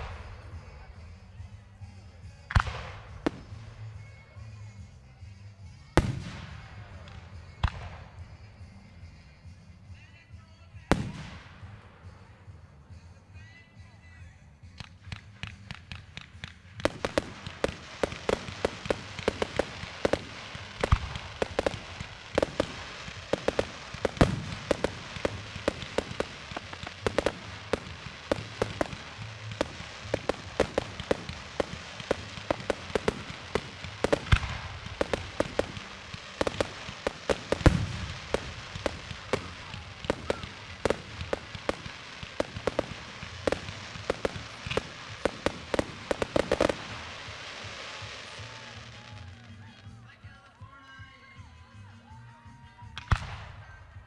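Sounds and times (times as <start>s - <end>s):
fireworks booms: 0.0s - 4.5s, 10.8s - 12.5s, 14.6s - 49.5s
fireworks popping and crackling: 0.0s - 54.0s.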